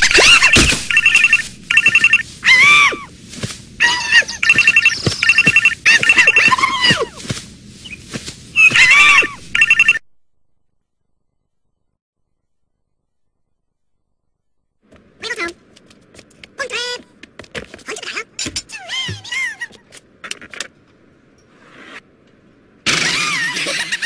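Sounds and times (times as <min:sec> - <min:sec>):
telephone ringing: 0:00.9 - 0:02.2, 0:04.4 - 0:06.4, 0:09.6 - 0:10.0.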